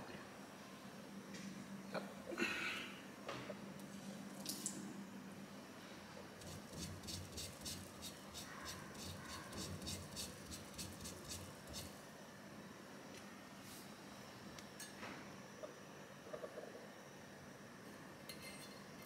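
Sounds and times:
tissue rubbing on stove burner: 6.4 - 12.0.

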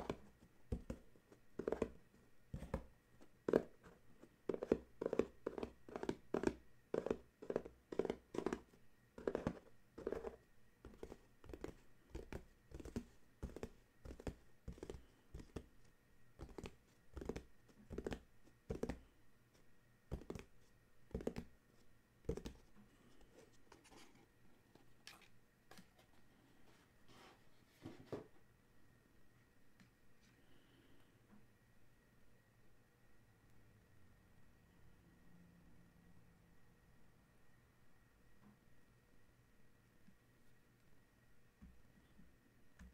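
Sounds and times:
fingertips tapping on cardboard box: 4.5 - 15.7, 16.4 - 19.0, 21.1 - 21.5.

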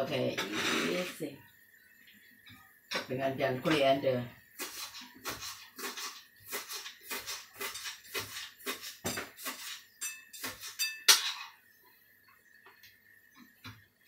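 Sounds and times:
knife chopping herbs: 4.6 - 9.8.

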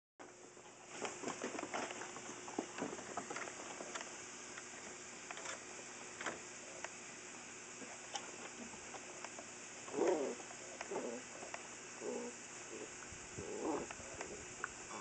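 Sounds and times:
puppies scuffling: 0.5 - 6.4
rustling of nylon play cube: 0.6 - 6.5.

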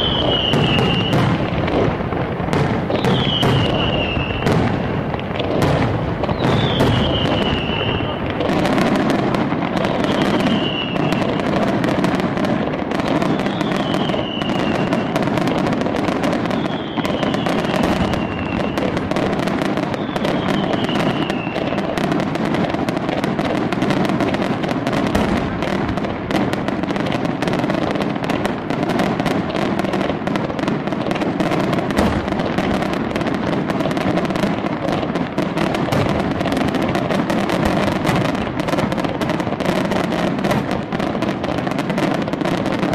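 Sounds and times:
falling firework whistle: 0.0 - 12.3, 13.0 - 22.6
fireworks crackling and popping: 0.0 - 42.9.

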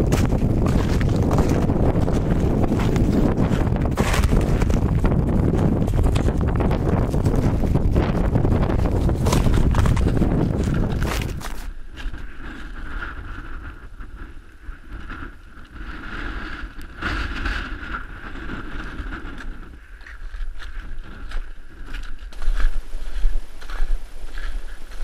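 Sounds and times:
knocks and crunches: 0.0 - 12.2
wind buffeting microphone: 0.0 - 25.0.

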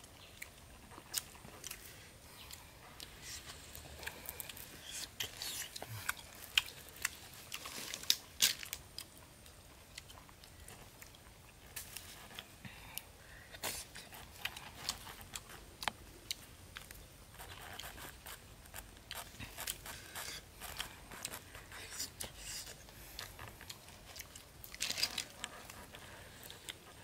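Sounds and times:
snail shells clicking and cracking: 4.0 - 7.2, 7.9 - 11.2.

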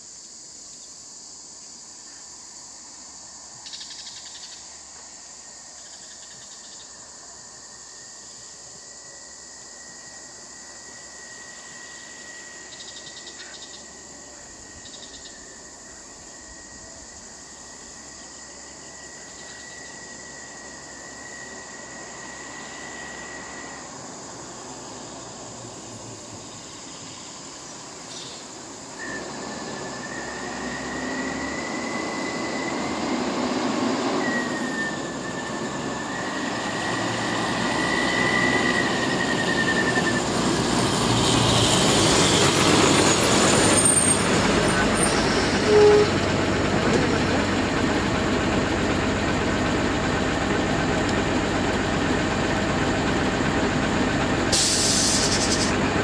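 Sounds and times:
high insect drone: 0.0 - 46.1, 47.1 - 55.8
diesel bus engine approaching: 0.3 - 56.0
high wavering squeal: 9.9 - 24.0, 29.0 - 40.6, 41.6 - 46.2, 54.6 - 55.8.

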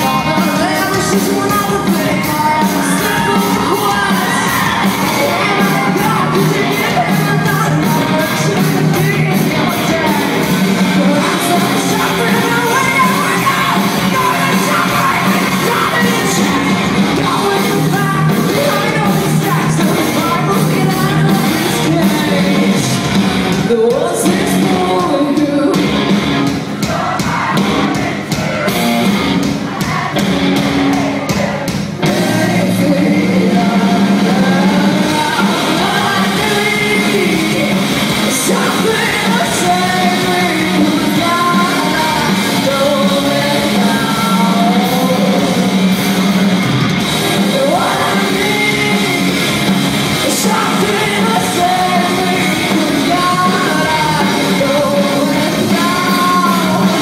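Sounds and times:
woman singing: 0.0 - 26.0, 32.1 - 45.7, 47.4 - 49.6, 50.2 - 57.0
live rock band playing: 0.0 - 57.0.

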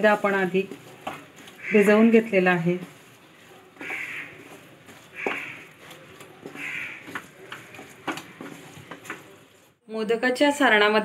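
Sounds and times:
wooden spatula scraping a pan: 0.0 - 9.8
bird calling: 3.8 - 4.5, 6.5 - 7.1.

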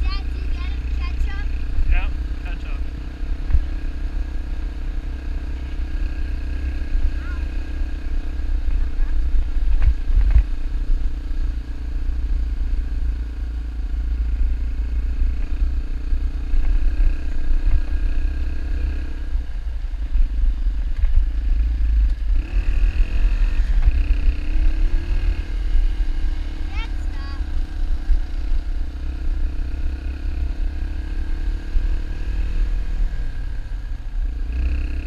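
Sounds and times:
dirt bike engine running: 0.0 - 35.0
wind rumble on microphone: 8.1 - 11.3.

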